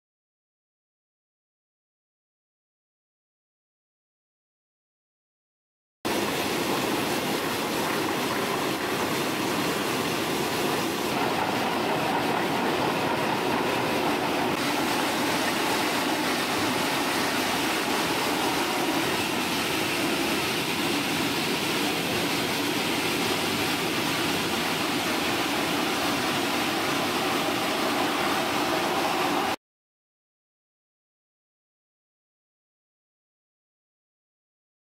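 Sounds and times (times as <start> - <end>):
floor grinder grinding concrete: 6.4 - 29.6.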